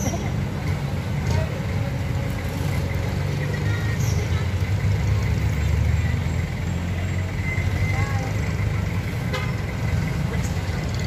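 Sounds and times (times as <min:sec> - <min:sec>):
traffic passing: 0:00.0 - 0:11.0.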